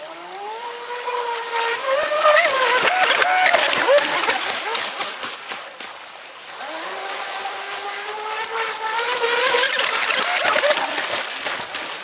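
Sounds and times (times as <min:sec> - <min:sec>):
electric motor whining: 0:00.0 - 0:04.9, 0:06.6 - 0:11.3.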